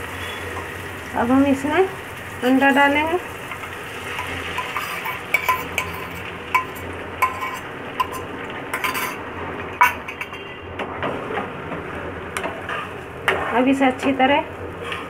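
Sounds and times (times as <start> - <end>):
metal utensils clinking on frying pan: 2.4 - 10.6.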